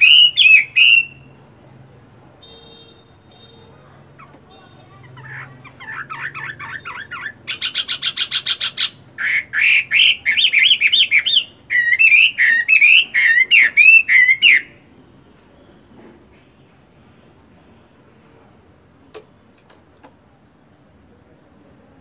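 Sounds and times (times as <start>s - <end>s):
bird singing: 0.0s - 15.9s.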